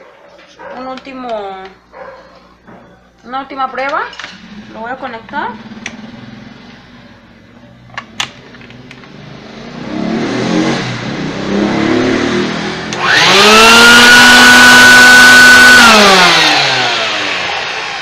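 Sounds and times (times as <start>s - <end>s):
vacuum cleaner motor whine: 11.5s - 18.0s.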